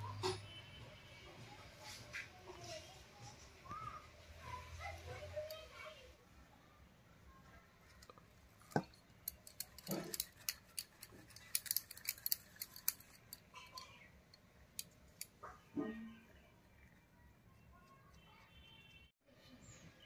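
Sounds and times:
bangles clinking on steel bowl: 8.0s - 15.4s.

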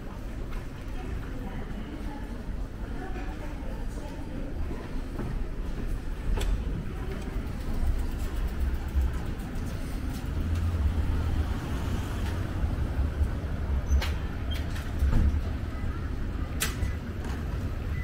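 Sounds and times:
road traffic rumble: 4.4s - 18.0s.

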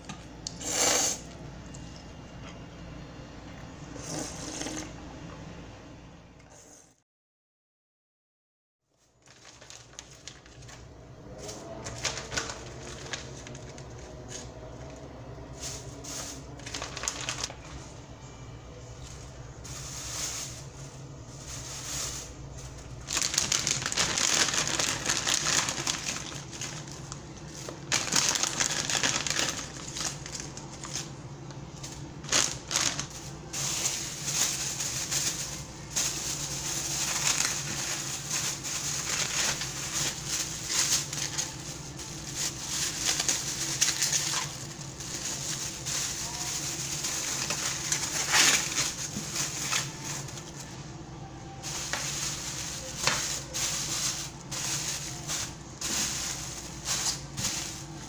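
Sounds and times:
plastic bags crinkling: 9.0s - 18.0s, 18.8s - 50.9s, 51.5s - 58.0s.

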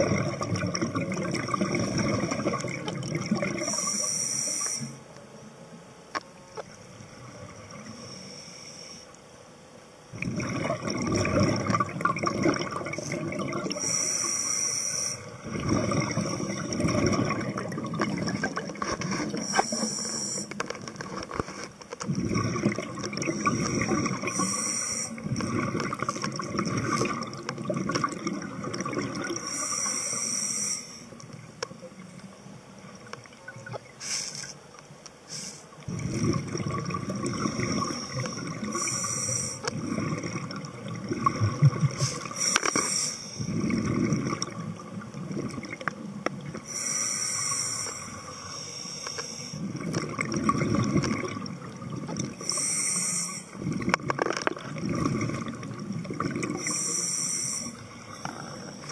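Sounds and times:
exhaled bubbles rushing: 0.0s - 3.8s, 10.1s - 13.9s, 15.3s - 19.7s, 22.1s - 29.4s, 35.8s - 39.1s, 39.7s - 42.4s, 43.4s - 46.6s, 49.6s - 52.5s, 53.5s - 56.7s
regulator inhale hiss: 3.6s - 5.0s, 7.9s - 9.2s, 13.7s - 15.4s, 19.3s - 20.6s, 23.4s - 25.2s, 29.4s - 31.2s, 34.0s - 34.6s, 35.2s - 35.8s, 37.6s - 39.7s, 42.0s - 43.6s, 46.6s - 49.7s, 52.4s - 53.6s, 56.6s - 58.9s.

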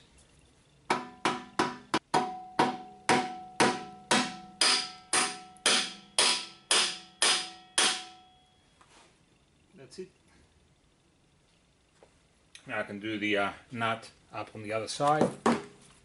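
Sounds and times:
mallet tapping metal axle: 0.9s - 8.3s.

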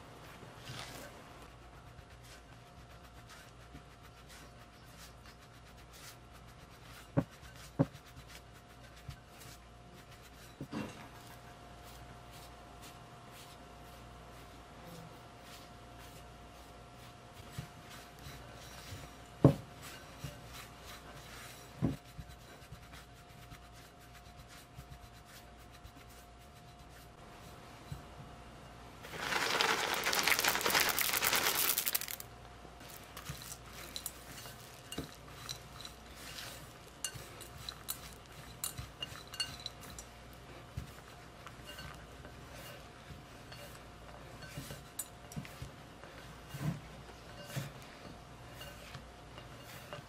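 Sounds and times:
spatula working dough in glass bowl: 0.2s - 28.2s, 29.0s - 32.2s, 32.8s - 50.0s
chocolate chips pouring into bowl: 29.1s - 32.2s.

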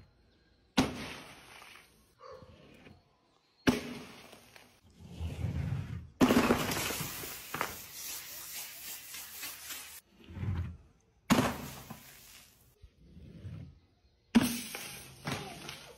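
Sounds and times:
bottles smashing on concrete: 6.2s - 8.1s, 14.4s - 15.9s
liquid spraying hiss: 6.7s - 10.0s.

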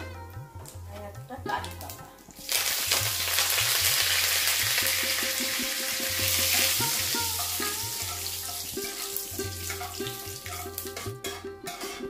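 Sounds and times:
leaves sizzling in hot oil: 1.8s - 11.1s
spatula stirring: 8.4s - 12.0s.

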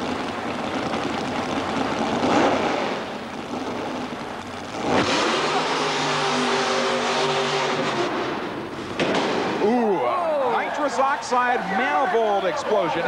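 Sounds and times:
engine running hard: 0.0s - 9.6s
loud bang: 8.0s - 9.8s.

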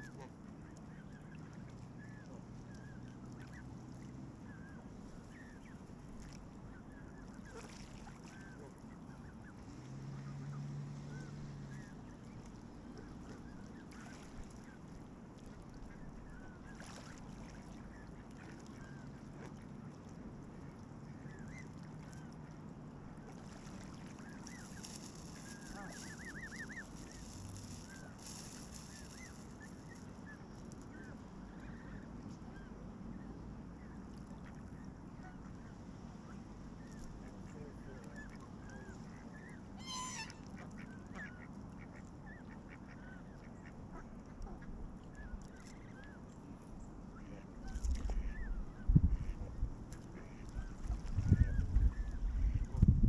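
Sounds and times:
geese honking: 24.2s - 30.5s, 34.4s - 44.7s.

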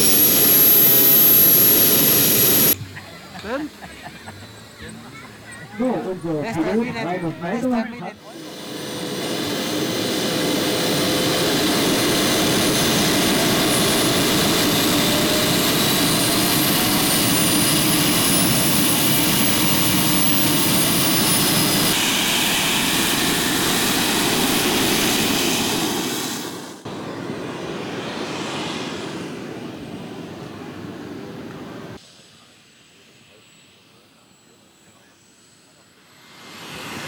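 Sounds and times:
model jet turbines running: 0.0s - 2.8s, 4.4s - 28.4s, 31.5s - 37.0s
high turbine whine: 0.0s - 37.0s.

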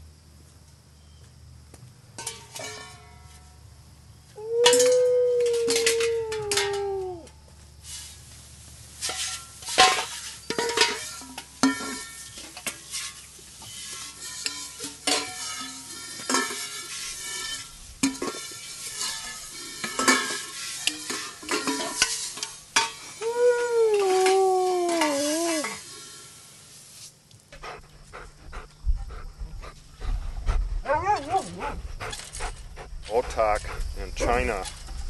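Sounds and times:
metal bowls clanking: 2.2s - 3.3s, 4.7s - 6.9s, 9.0s - 23.2s
dog howling: 4.4s - 7.3s, 23.2s - 25.8s, 30.8s - 31.8s
hose spray hissing: 22.0s - 27.2s.

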